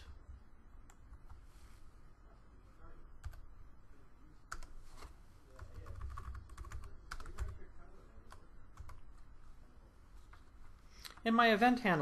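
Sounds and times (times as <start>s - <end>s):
computer keyboard typing: 3.2s - 3.4s, 4.5s - 9.0s.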